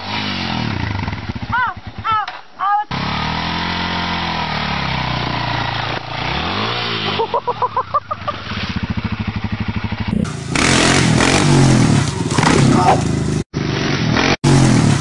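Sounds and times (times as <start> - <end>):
dirt bike engine revving: 0.0 - 2.2, 2.9 - 15.0
dirt bike engine at high revs: 0.0 - 15.0.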